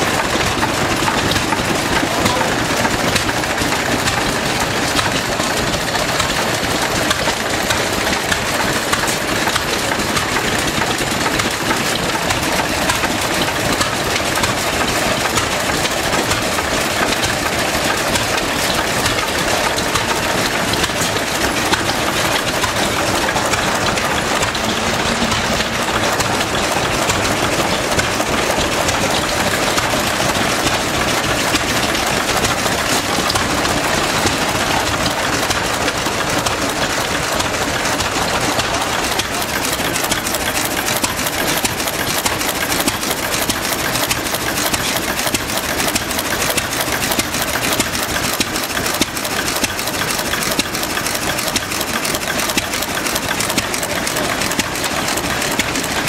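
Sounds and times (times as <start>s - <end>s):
stationary engines clattering: 0.0s - 56.0s.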